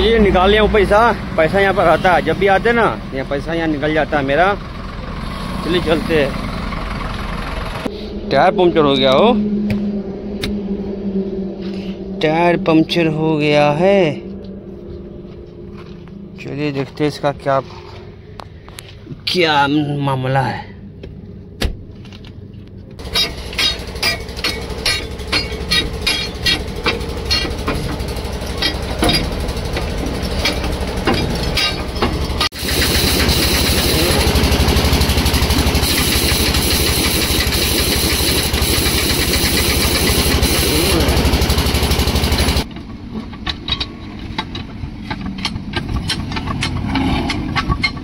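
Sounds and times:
machine throbbing and hissing: 23.0 - 42.7.

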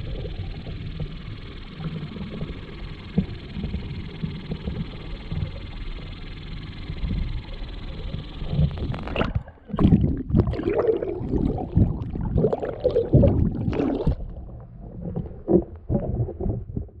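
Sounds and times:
water sloshing and gurgling: 8.2 - 17.0.

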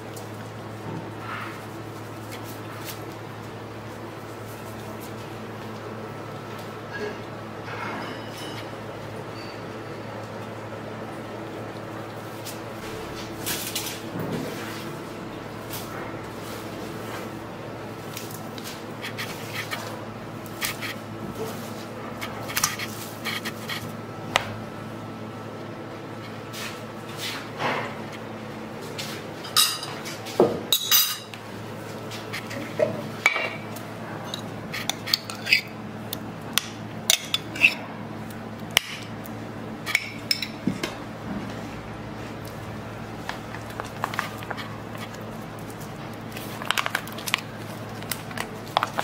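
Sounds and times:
steady low hum: 0.0 - 49.0
clink against steel bowl: 7.8 - 9.6
metal spoon stirring in ceramic bowl: 34.2 - 35.8, 37.1 - 37.8.

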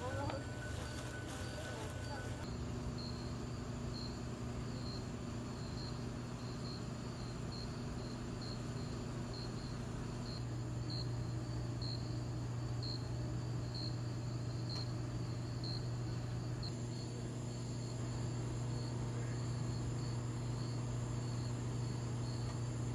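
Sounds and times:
cricket chirping: 0.0 - 22.9
steady low hum: 0.0 - 22.9.

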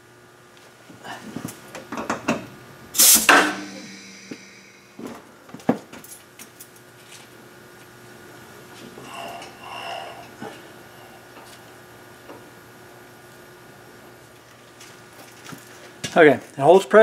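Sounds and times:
compressed air hiss: 3.0 - 5.0.

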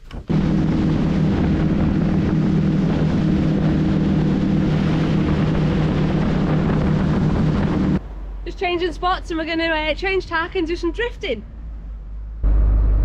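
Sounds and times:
motorboat engine drone: 0.0 - 8.4, 12.4 - 13.0
wind: 0.0 - 13.0
spray rushing off hull: 0.3 - 8.0.

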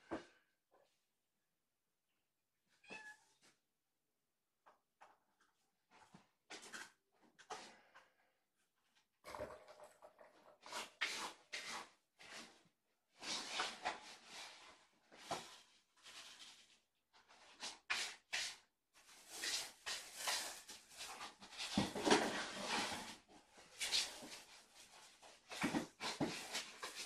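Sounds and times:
cat litter being scooped: 10.4 - 27.0.

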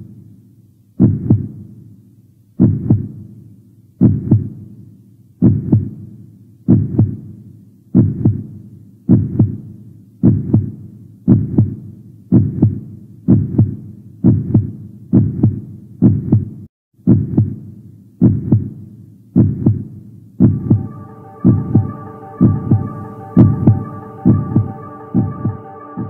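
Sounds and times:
heartbeat double thump: 1.0 - 1.5, 2.6 - 3.1, 4.0 - 4.6, 5.4 - 5.9, 6.7 - 7.2, 9.1 - 9.6, 10.2 - 17.6, 18.2 - 18.7, 19.4 - 20.8
sustained musical notes: 20.5 - 26.0.

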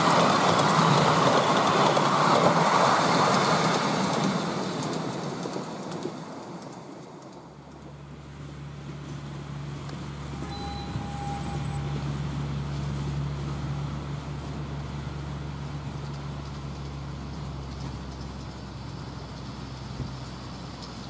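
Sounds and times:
distant locomotive hum: 0.0 - 21.0.

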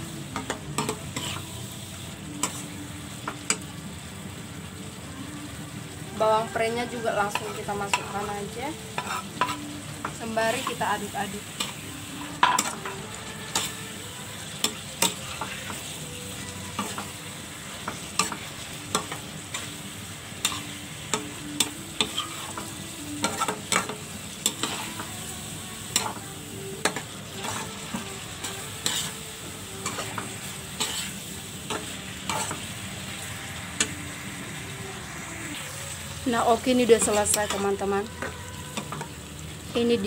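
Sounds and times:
food sizzling in a wok: 0.0 - 40.0
metal spatula scraping pan: 0.8 - 1.4, 8.9 - 9.7, 10.5 - 13.8, 20.4 - 25.1, 26.8 - 29.2, 29.8 - 34.0.

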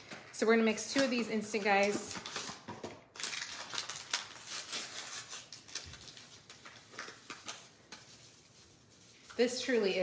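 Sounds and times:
paper and plastic crinkling: 0.0 - 10.0
packaging being torn open: 2.1 - 7.6.

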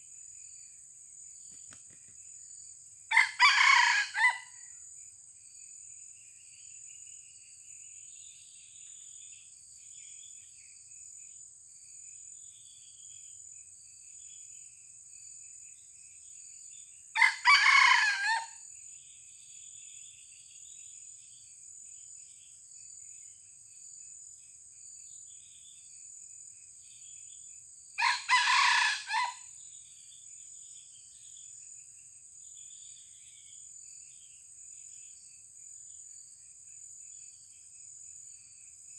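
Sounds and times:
rooster crowing: 3.1 - 4.6, 17.2 - 18.6, 28.0 - 29.5.

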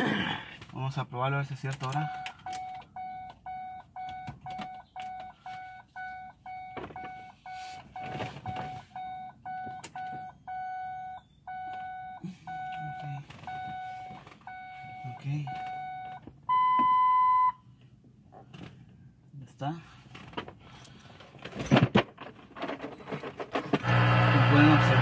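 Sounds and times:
repeating electronic warning beep: 2.0 - 17.6.

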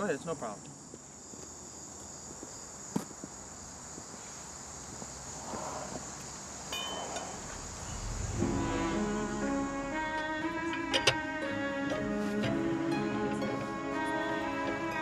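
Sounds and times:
high-pitched insect chorus: 0.0 - 12.2
low sustained music notes: 7.2 - 15.0.

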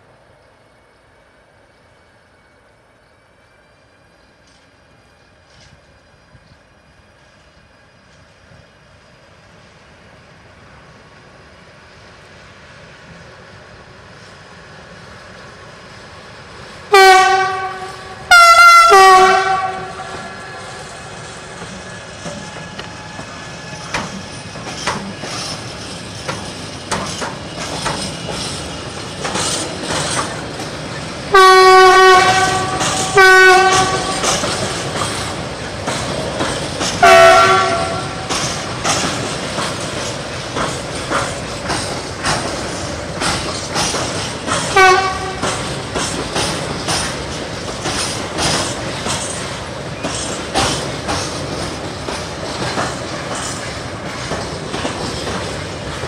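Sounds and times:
train wheels clicking over rail joints: 3.9 - 56.0
locomotive horn blasts: 16.9 - 20.6, 31.3 - 34.3, 37.0 - 38.3, 44.7 - 45.6.

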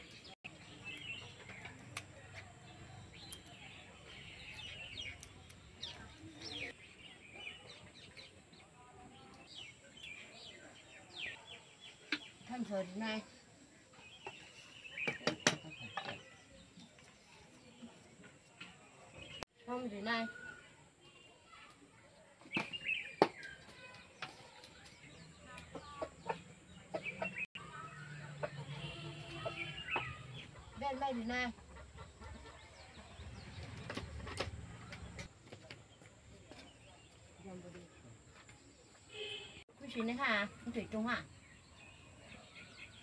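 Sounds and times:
small birds chirping: 0.0 - 43.0
chickens clucking: 25.6 - 35.4.

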